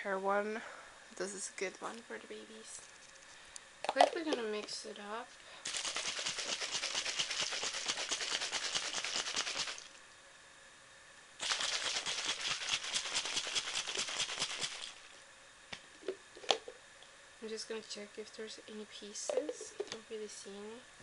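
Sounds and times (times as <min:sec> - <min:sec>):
bottle shaken with rattling slosh: 0:05.6 - 0:10.0, 0:11.4 - 0:15.0.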